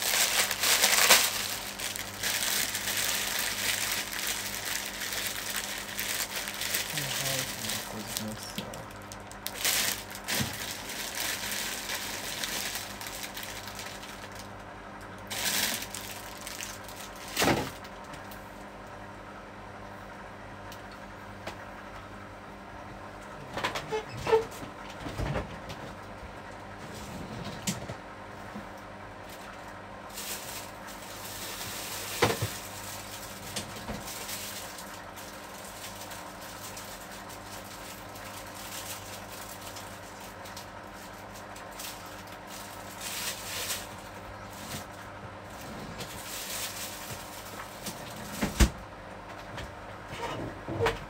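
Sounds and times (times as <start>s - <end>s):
kitchen appliance humming: 0.0s - 25.0s.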